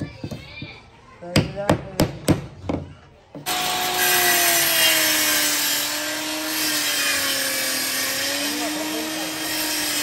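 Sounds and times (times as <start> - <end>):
power saw cutting board: 3.4 - 10.0.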